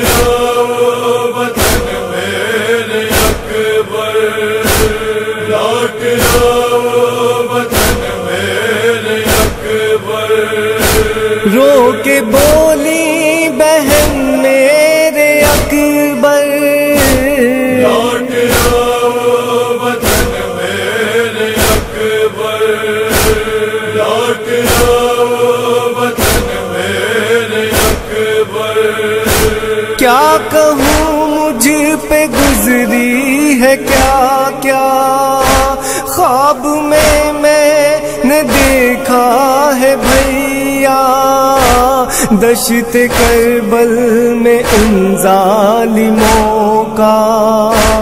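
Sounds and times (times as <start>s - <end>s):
men chanting: 0.0s - 48.0s
solo voice singing ornamented melody: 11.5s - 19.3s
heavy chest-beating beat: 17.0s - 19.4s, 23.0s - 23.8s, 29.1s - 34.4s, 41.5s - 45.3s, 46.1s - 46.9s, 47.7s - 48.0s.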